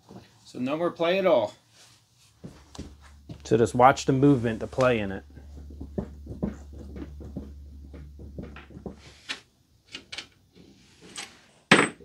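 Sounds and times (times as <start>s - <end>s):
low hum: 3.0s - 9.0s.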